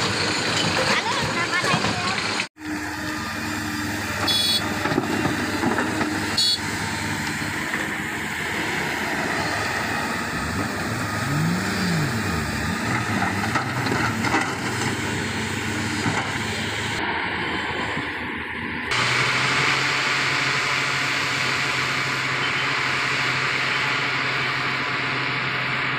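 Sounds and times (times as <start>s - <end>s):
excavator engine and hydraulics: 0.0s - 25.9s.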